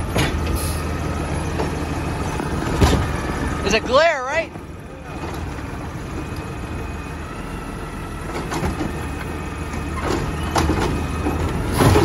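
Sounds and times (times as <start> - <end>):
garbage truck engine running: 0.0 - 12.0
cart banging on hopper: 2.6 - 4.0, 9.8 - 12.0.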